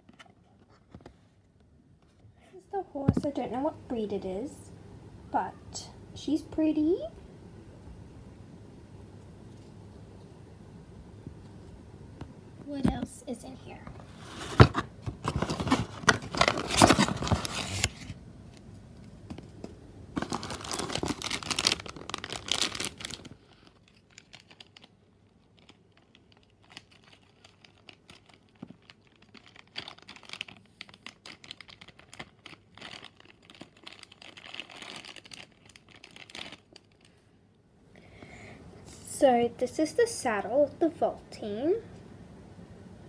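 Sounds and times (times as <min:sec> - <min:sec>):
plastic bags crinkling: 0:15.2 - 0:18.1, 0:20.1 - 0:37.2.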